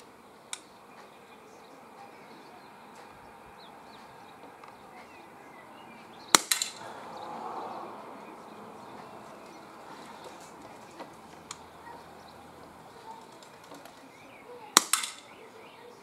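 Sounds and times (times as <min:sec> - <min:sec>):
faint birdsong: 0:00.0 - 0:16.0
air pistol shot crack: 0:06.3 - 0:06.8, 0:14.8 - 0:15.3.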